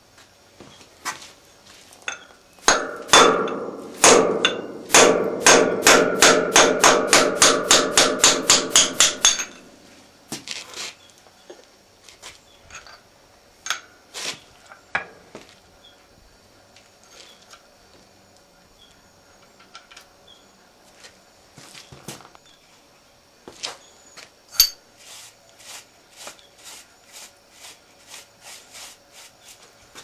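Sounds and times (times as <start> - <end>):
forging hammer blows ringing: 2.7 - 9.7.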